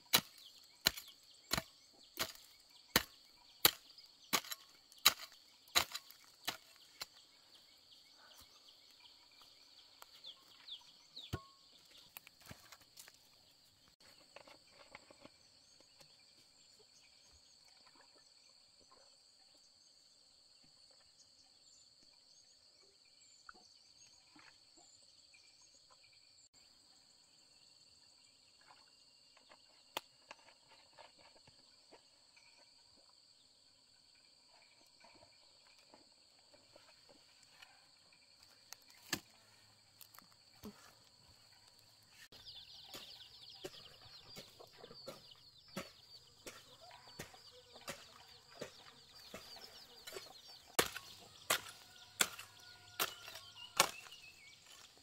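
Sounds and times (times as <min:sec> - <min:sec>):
hoe chopping into dry soil: 0:00.0 - 0:07.2, 0:38.8 - 0:39.4, 0:42.8 - 0:54.9
insect chorus: 0:00.0 - 0:55.0.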